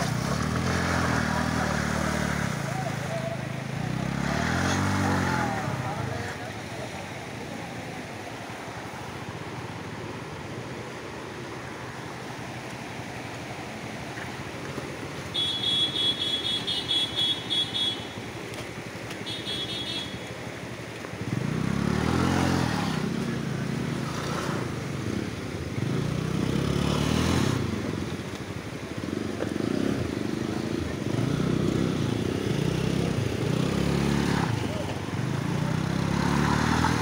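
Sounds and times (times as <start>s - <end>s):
scooter and motorcycle engines revving: 0.0s - 9.9s, 19.2s - 37.0s
river rushing: 0.0s - 37.0s.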